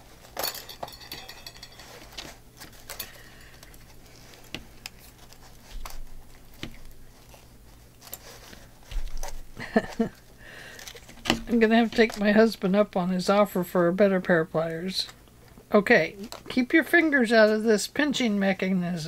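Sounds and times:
papers being handled: 1.8s - 12.6s.

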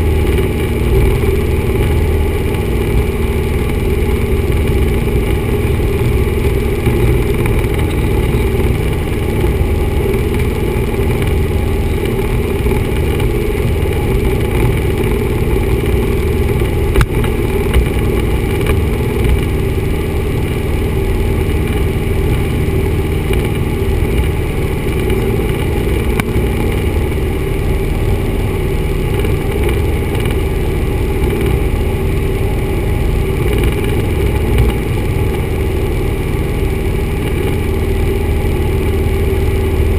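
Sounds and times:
airplane engine and propeller drone: 0.0s - 39.9s.

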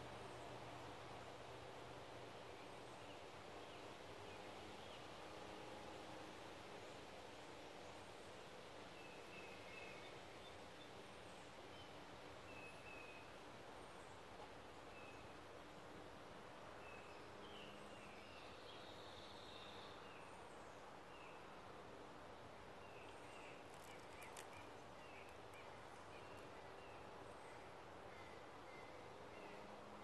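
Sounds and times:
faint clicks: 23.7s - 26.5s.

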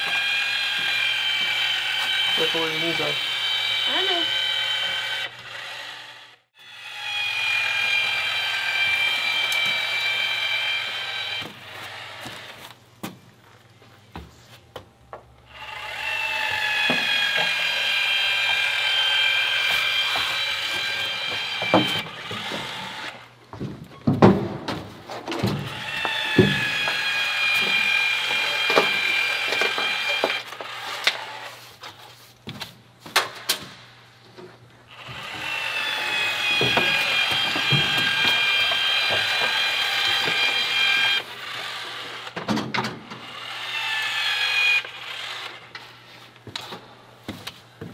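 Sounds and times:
adhesive gun motor whining: 0.0s - 12.7s, 15.5s - 23.2s, 25.6s - 31.5s, 34.9s - 42.4s, 43.2s - 45.8s.

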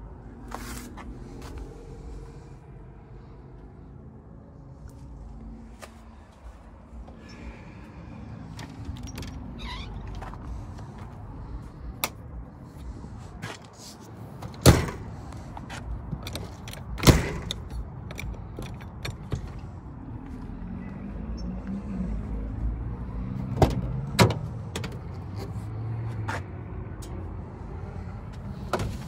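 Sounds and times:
door banging shut: 14.6s - 15.1s, 17.0s - 17.6s.

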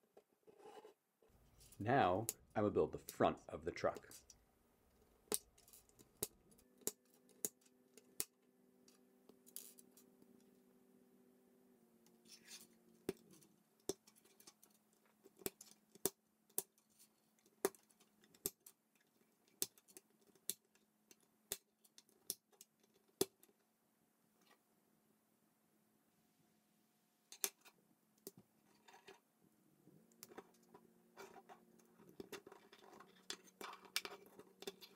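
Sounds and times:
faint steady hum: 0.0s - 16.5s
plastic pieces clicking together: 30.2s - 34.9s.

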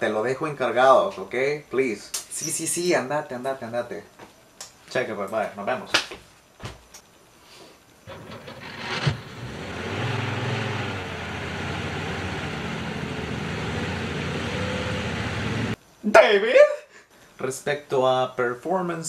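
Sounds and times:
car engine starting and running: 8.1s - 15.8s.

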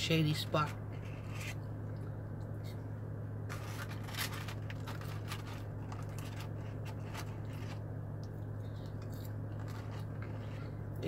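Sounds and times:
rustling and clicks of food handling: 3.5s - 11.0s.

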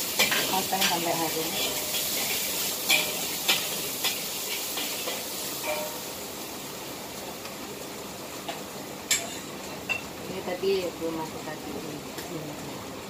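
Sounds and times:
garlic sizzling in hot oil: 0.0s - 13.0s
metal spatula tapping a wok: 0.1s - 6.1s, 8.5s - 10.1s.

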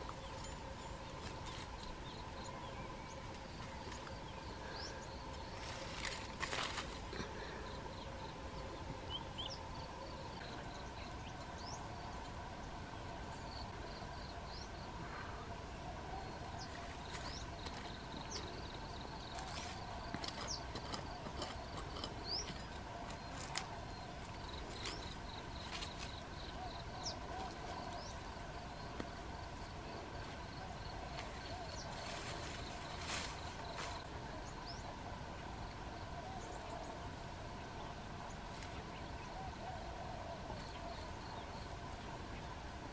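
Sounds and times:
footsteps through brush: 3.1s - 7.3s, 16.6s - 34.2s
insects trilling: 13.3s - 37.2s.

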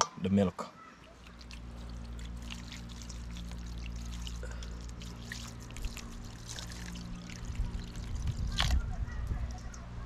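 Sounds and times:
water pouring with small splashes: 1.0s - 9.0s.

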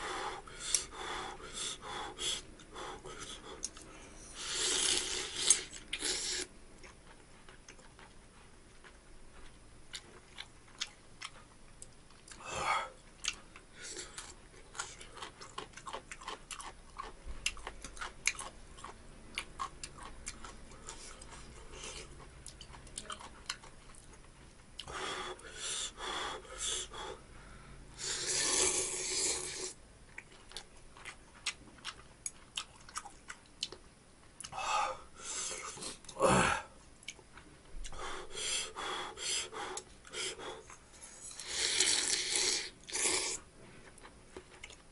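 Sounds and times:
person chewing noodles: 0.1s - 27.2s, 28.0s - 33.8s, 34.4s - 44.9s
loud noodle slurps: 28.0s - 29.8s, 41.3s - 43.4s.

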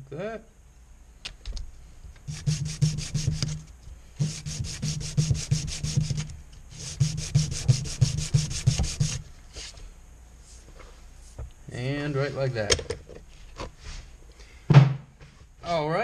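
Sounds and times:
scraping on sandpaper: 2.3s - 9.8s.

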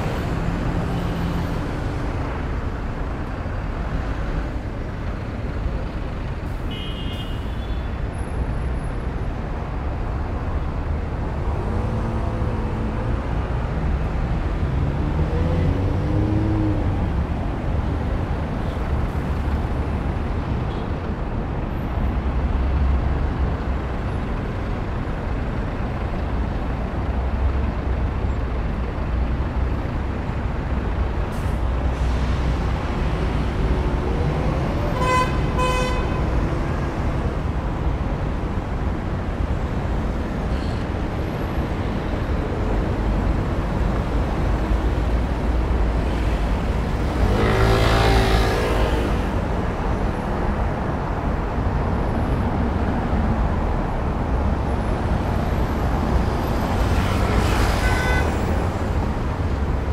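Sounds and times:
city traffic rumble: 0.0s - 59.9s
car horn toot: 6.7s - 7.9s, 57.8s - 58.4s.

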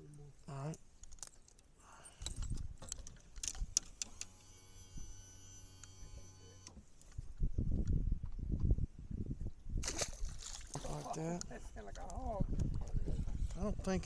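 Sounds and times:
fishing hooks clicking and rattling: 1.0s - 4.1s
small electric motor humming: 4.1s - 6.8s.

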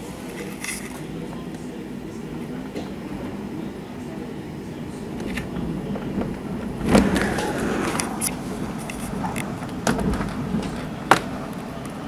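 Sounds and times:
thunder rumble: 1.1s - 12.0s.

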